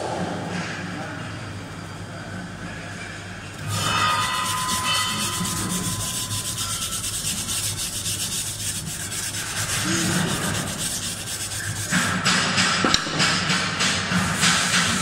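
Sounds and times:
wire brush scrubbing steel: 3.6s - 12.8s, 13.5s - 15.0s.

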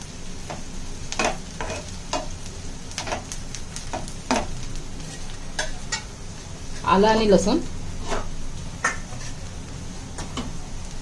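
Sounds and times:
onion sizzling in oil: 0.0s - 11.0s
utensil scraping a pan: 8.0s - 8.3s, 9.1s - 9.4s.

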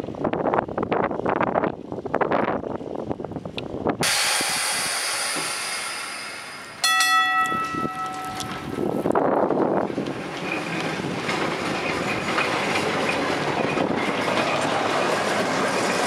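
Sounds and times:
tram rumbling: 0.0s - 16.0s
loud air hiss: 4.0s - 6.9s
tram gong ringing: 6.1s - 9.2s.

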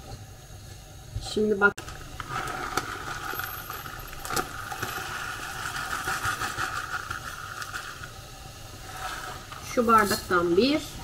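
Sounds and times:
steady hiss: 0.0s - 11.0s
grains rattling into a glass: 1.8s - 8.1s
plastic bag crinkling: 1.8s - 8.1s.

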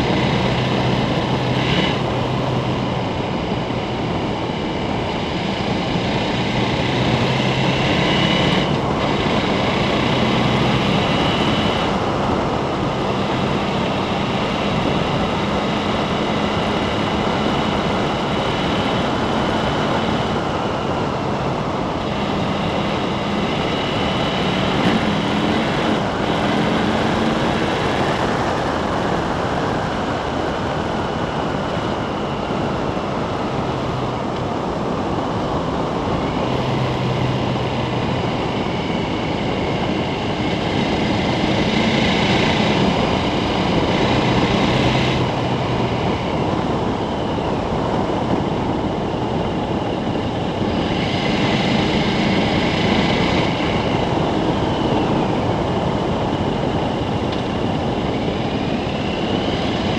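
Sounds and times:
motorcycle engine running: 0.0s - 59.9s
wind rush: 0.0s - 59.9s.

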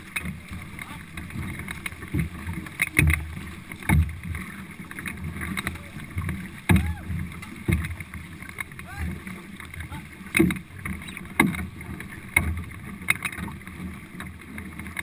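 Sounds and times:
canoe paddles splashing water: 0.0s - 15.0s
water rushing along hull: 0.0s - 15.0s.

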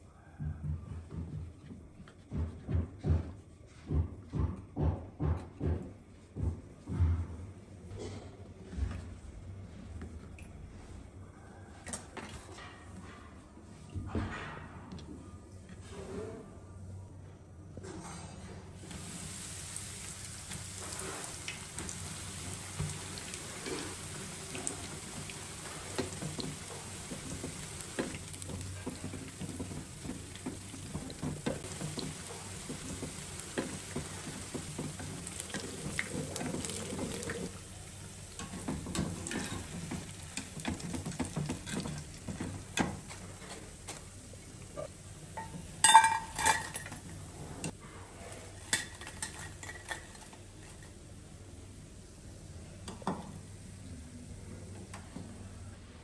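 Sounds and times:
bread deep-frying in hot oil: 18.8s - 47.7s, 48.4s - 54.9s
wooden spatula stirring: 20.8s - 45.6s.

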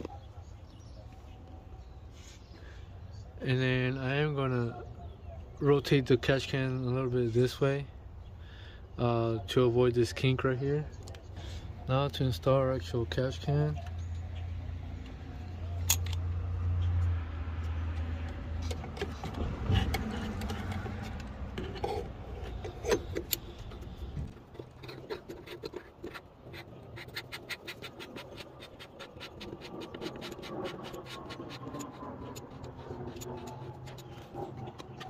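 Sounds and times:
metal clicks knocks and scrapes: 15.8s - 35.0s.

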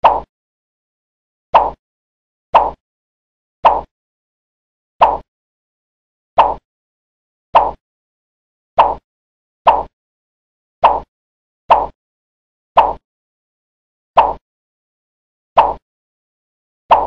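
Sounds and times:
cartoon swishing whoosh: 7.6s - 7.8s, 9.7s - 9.9s, 12.8s - 13.0s.

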